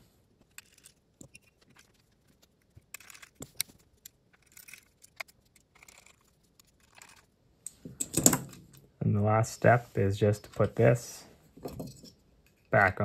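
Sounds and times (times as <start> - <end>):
screwdriver clicking and scraping: 0.4 - 8.4
hands handling device: 0.4 - 8.8.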